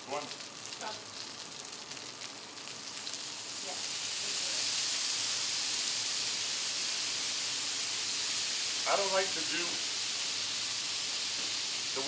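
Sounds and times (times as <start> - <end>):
chicken wings sizzling on griddle: 0.0 - 12.0
sauce hissing on hot surface: 2.9 - 12.0.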